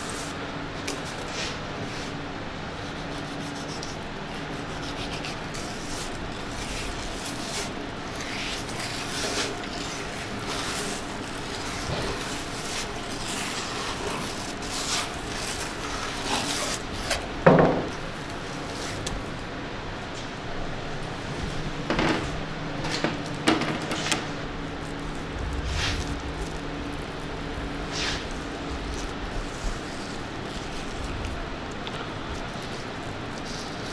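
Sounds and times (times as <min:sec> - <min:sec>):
knife scraping fish fillet: 0:02.9 - 0:17.3.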